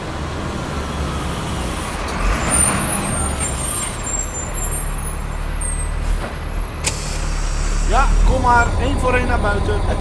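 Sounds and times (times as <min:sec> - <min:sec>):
bus engine rumble: 0:00.0 - 0:10.0
high-pitched brake squeals: 0:02.3 - 0:06.2, 0:06.9 - 0:09.0.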